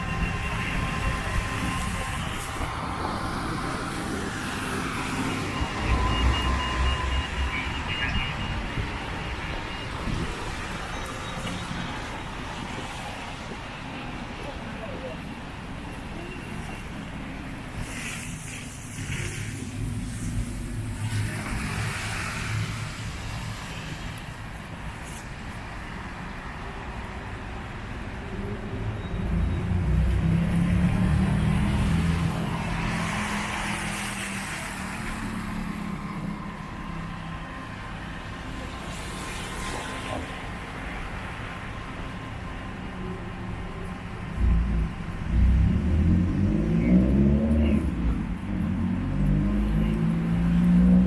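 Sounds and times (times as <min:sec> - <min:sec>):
cars passing: 0:00.0 - 0:51.0
heavy vehicle engine rumble: 0:40.1 - 0:50.7.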